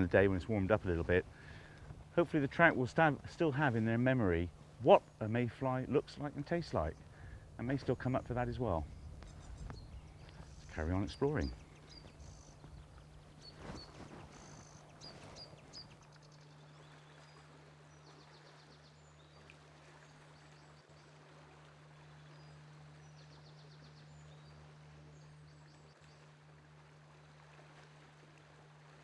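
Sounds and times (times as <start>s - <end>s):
steady low hum: 0.0s - 29.0s
faint bird chirps and trills: 4.6s - 27.6s.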